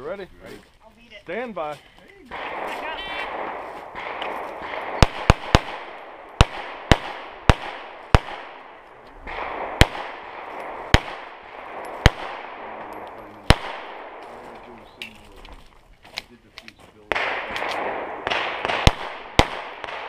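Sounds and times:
pistol shots: 2.3 - 14.3, 17.1 - 20.0.

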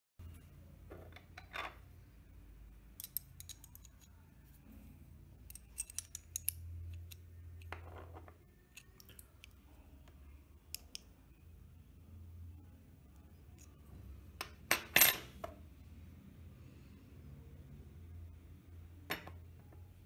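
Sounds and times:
low steady hum: 0.2 - 20.0
tools clicking and snipping: 3.0 - 4.1, 5.5 - 7.7.

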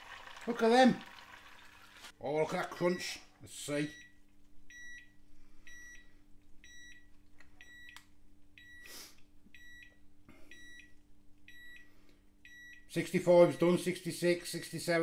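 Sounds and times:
faint steady hum: 0.0 - 15.0
thermometer alarm double beeps: 3.9 - 8.0, 9.6 - 13.9.

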